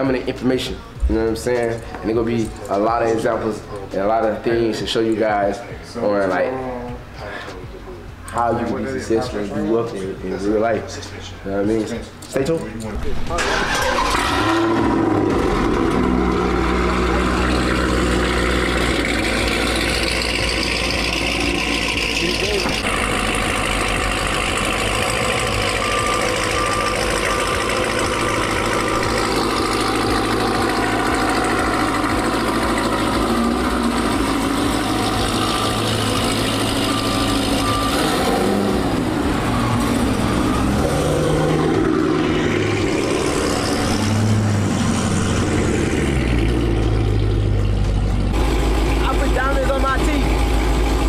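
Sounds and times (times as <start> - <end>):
car engine rumbling: 0.0 - 51.0
high electronic beeps: 24.4 - 33.2, 33.8 - 45.5.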